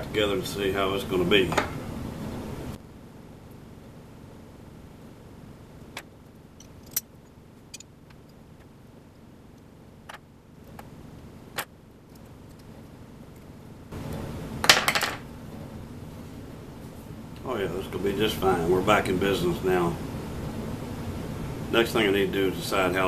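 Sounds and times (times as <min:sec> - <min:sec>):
metal clinks and rattling: 0:06.6 - 0:07.1.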